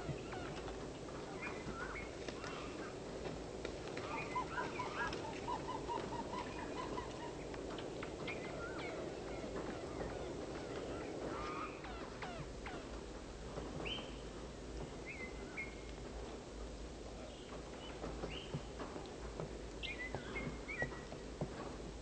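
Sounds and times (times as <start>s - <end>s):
low background hiss: 0.0s - 22.0s
small birds chirping: 15.0s - 16.0s, 17.2s - 18.8s, 19.7s - 21.3s.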